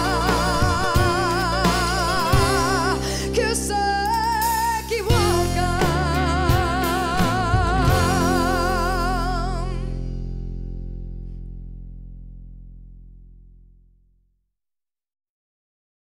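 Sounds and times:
woman singing with vibrato: 0.0 - 10.1
drums: 0.0 - 10.2
acoustic guitars: 0.0 - 11.9
upright bass: 0.0 - 14.1.

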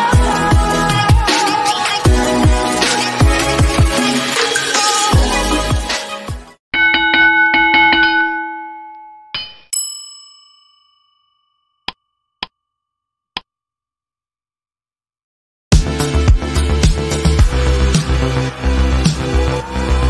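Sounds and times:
bright bell ding: 6.8 - 12.4.

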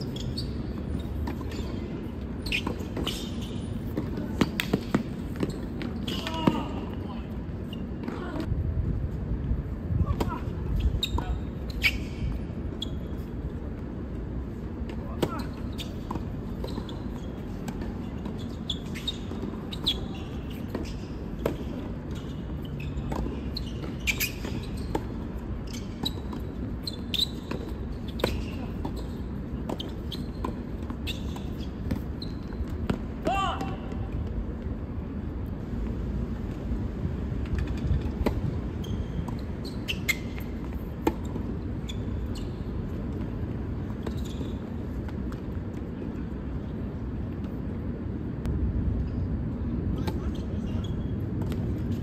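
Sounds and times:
short high squeaks: 0.0 - 3.8, 15.3 - 21.2, 22.1 - 32.7, 38.8 - 40.5, 44.0 - 44.7
low rumble of hall: 0.0 - 52.0.

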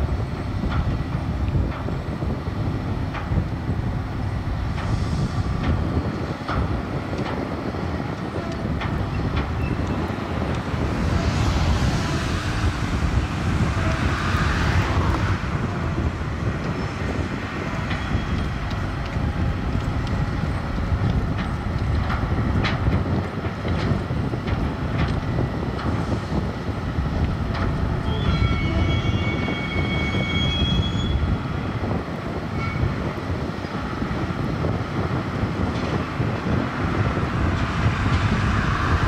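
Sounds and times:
crane engine and winch rumble: 0.0 - 39.0.

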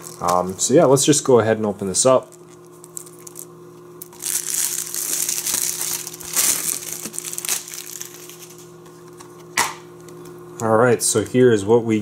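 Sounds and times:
plastic shrink wrap crinkling: 0.0 - 0.6, 2.1 - 9.3.

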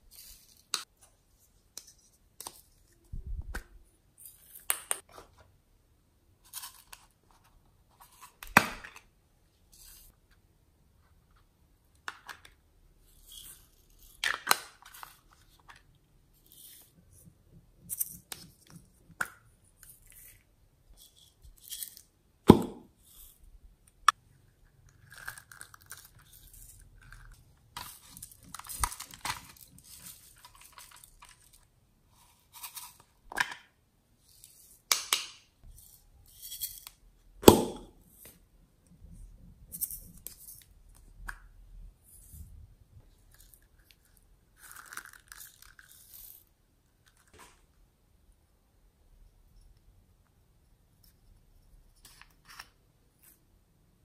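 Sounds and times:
plastic packets crinkling: 27.0 - 31.7.

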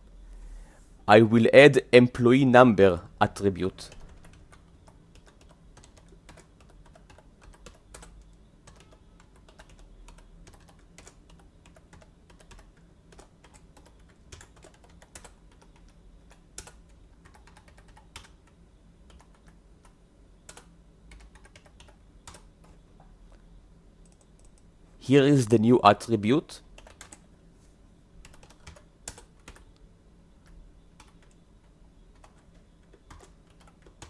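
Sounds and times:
low steady hum: 0.0 - 34.0
keyboard typing: 3.8 - 23.4, 24.0 - 24.7, 26.7 - 27.3, 28.2 - 29.8, 30.4 - 34.0.

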